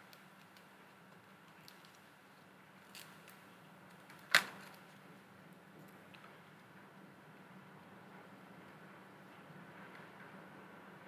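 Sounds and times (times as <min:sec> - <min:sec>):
faint ticks of peeling tape: 0:00.0 - 0:04.9.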